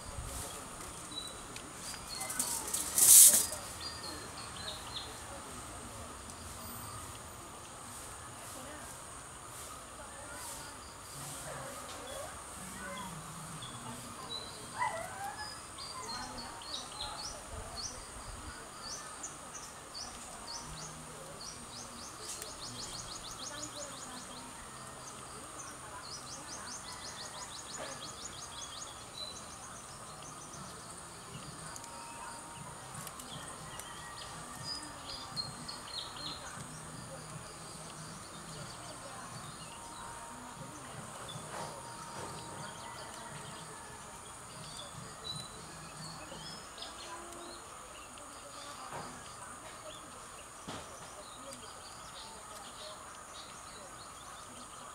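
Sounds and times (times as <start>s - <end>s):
birds chirping and trilling: 0.3s - 7.0s, 12.0s - 54.9s.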